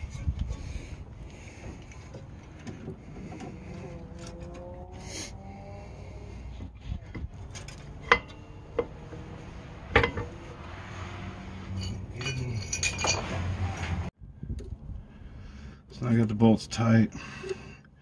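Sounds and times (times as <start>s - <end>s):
brake caliper clinking: 7.2s - 10.4s
sharp metallic knocks: 7.8s - 10.4s.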